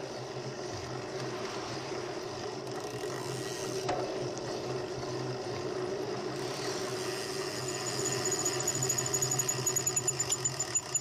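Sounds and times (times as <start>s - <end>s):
fast steady ticking: 7.5s - 11.0s.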